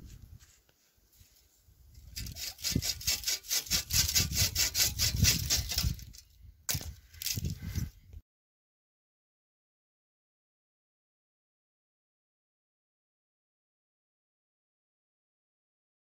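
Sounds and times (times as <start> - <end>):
hand saw cutting wood: 2.0 - 7.5.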